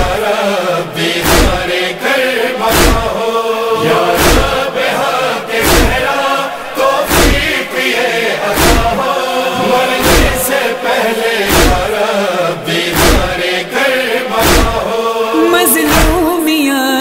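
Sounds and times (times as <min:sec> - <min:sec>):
chorus of voices chanting: 0:00.0 - 0:17.0
deep thumps: 0:01.2 - 0:01.7, 0:02.7 - 0:03.1, 0:04.1 - 0:04.6, 0:07.1 - 0:07.5, 0:08.6 - 0:09.0, 0:09.6 - 0:10.4, 0:12.9 - 0:13.4, 0:14.4 - 0:14.8.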